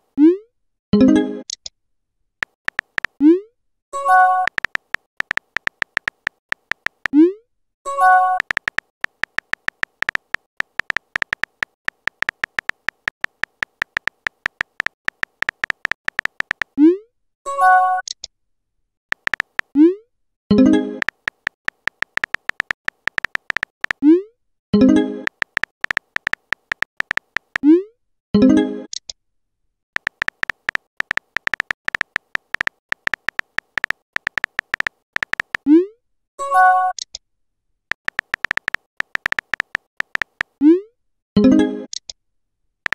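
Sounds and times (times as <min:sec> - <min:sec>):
phone keyboard typing clicks: 0:02.4 - 0:03.2, 0:04.2 - 0:07.2, 0:08.2 - 0:16.8, 0:19.1 - 0:19.8, 0:20.8 - 0:24.0, 0:25.1 - 0:27.7, 0:30.0 - 0:35.7, 0:37.9 - 0:40.6.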